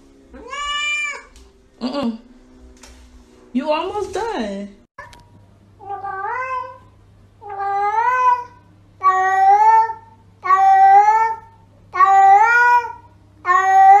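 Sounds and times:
cat meowing: 0.4 - 1.3, 5.8 - 6.8, 7.4 - 11.4.

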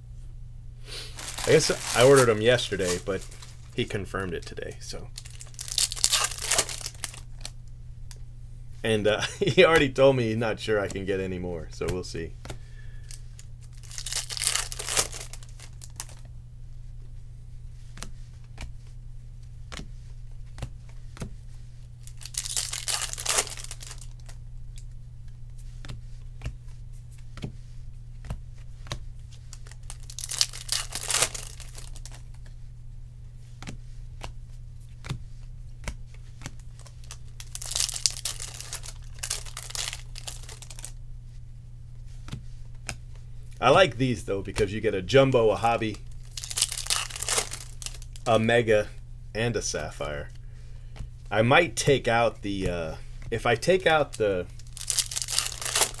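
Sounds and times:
foil wrappers crinkling and tearing: 1.0 - 3.9, 5.1 - 7.6, 13.0 - 16.2, 22.0 - 24.4, 29.4 - 32.3, 36.5 - 41.0, 45.5 - 48.5, 53.5 - 56.0.

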